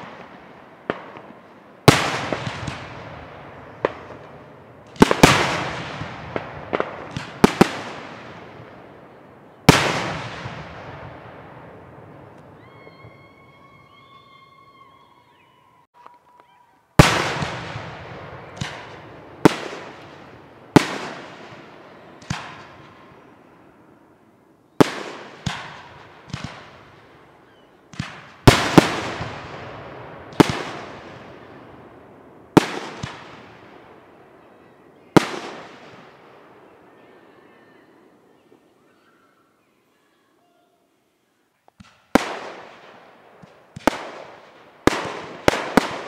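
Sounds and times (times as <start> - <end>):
rolling echo: 0.0 - 16.4.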